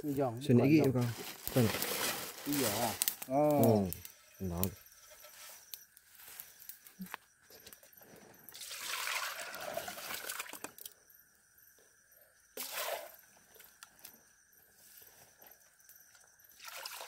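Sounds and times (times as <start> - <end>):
liquid pouring into metal pot: 8.6 - 10.9, 16.6 - 17.0.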